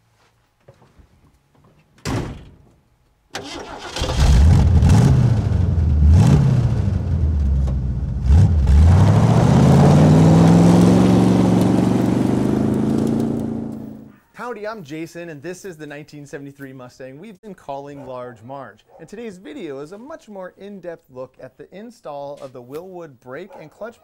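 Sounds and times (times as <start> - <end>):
car accelerating away: 3.4 - 14.1
car engine starting: 3.4 - 14.1
car engine revving: 3.7 - 14.1.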